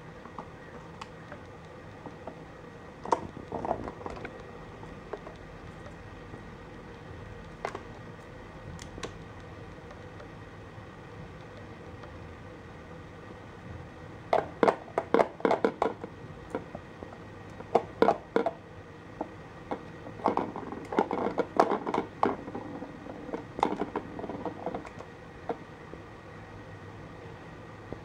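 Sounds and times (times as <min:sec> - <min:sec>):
plastic ball clattering in track: 0:20.2 - 0:22.4.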